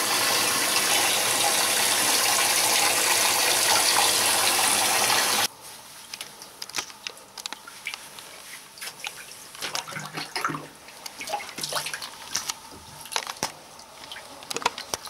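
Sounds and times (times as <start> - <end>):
water rushing into bathtub: 0.0 - 5.5, 9.6 - 12.1
water dripping and splashing: 8.8 - 15.0.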